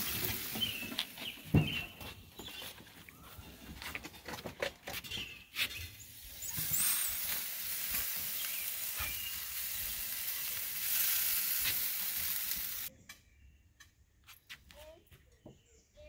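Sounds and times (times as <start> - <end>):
chicken sizzling on grill: 0.0 - 1.8, 5.9 - 12.9.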